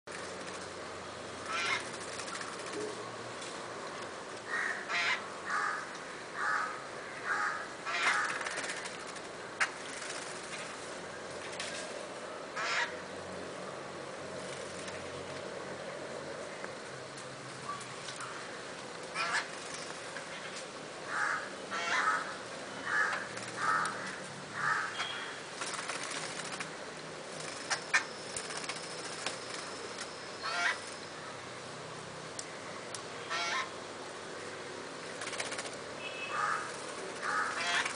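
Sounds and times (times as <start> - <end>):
birds giving harsh rasping calls: 1.4 - 2.8, 4.5 - 10.3, 12.6 - 13.0, 17.8 - 20.5, 21.1 - 26.7, 27.4 - 31.3, 33.2 - 33.8, 35.2 - 37.9.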